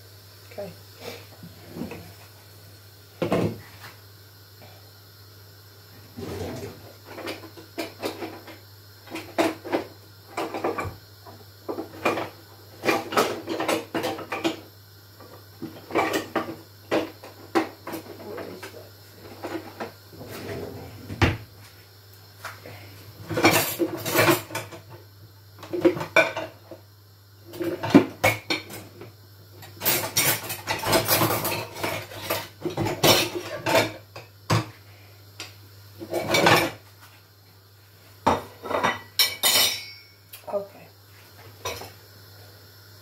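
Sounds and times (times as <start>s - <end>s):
dishes and cutlery clattering: 29.6s - 34.0s, 38.4s - 40.2s.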